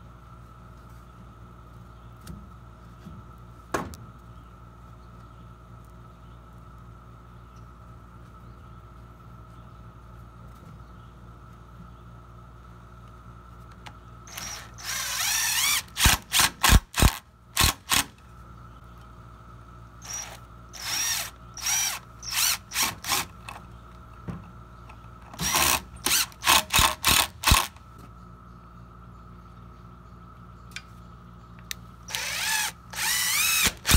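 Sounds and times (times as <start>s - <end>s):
cordless drill driving screws: 14.3s - 18.1s, 20.0s - 23.3s, 25.4s - 27.7s, 32.1s - 33.9s.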